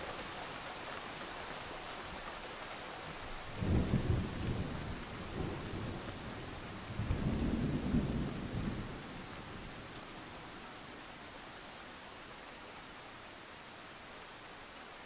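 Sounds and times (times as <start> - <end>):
rain hissing: 0.0 - 12.0
thunder rumbling: 3.6 - 9.3.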